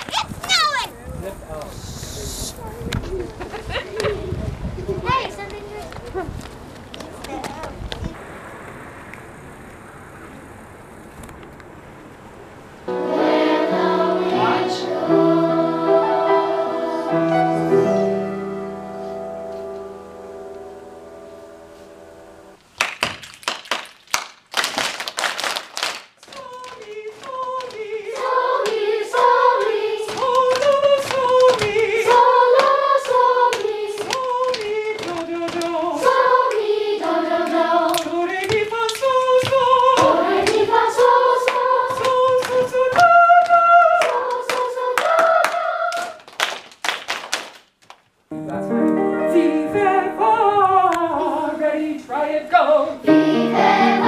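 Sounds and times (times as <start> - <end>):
children's choir singing: 12.9 - 19.0, 26.4 - 46.3, 48.8 - 54.0
rhythmic hand claps: 22.8 - 48.0.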